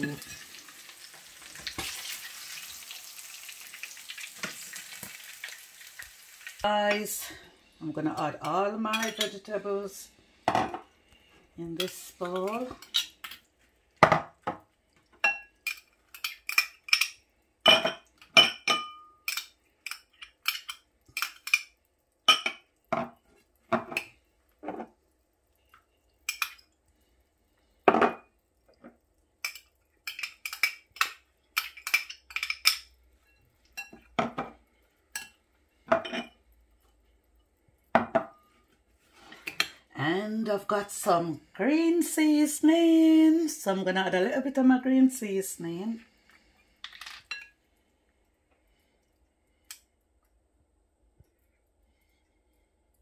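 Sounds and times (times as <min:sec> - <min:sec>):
metal spoon clinking on glass bowl: 0:15.2 - 0:19.5.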